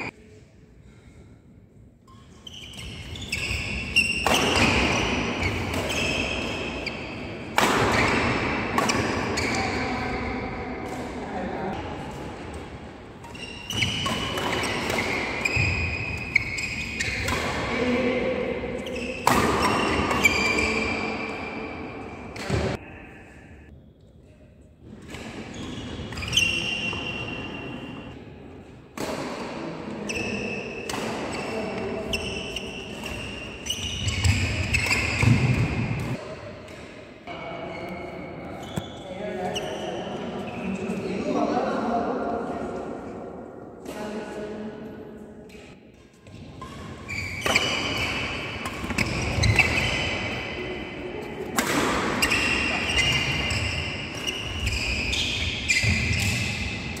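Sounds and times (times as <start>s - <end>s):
racket striking shuttlecock: 7.5s - 9.4s.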